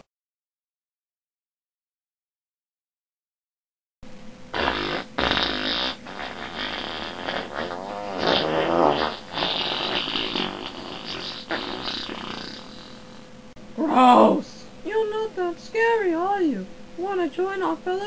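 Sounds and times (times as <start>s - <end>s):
farting noise with wobbling pitch: 4.5s - 13.2s.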